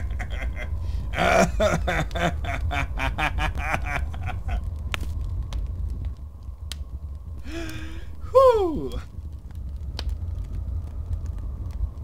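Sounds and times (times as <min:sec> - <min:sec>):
cackling laugh: 0:00.0 - 0:04.6.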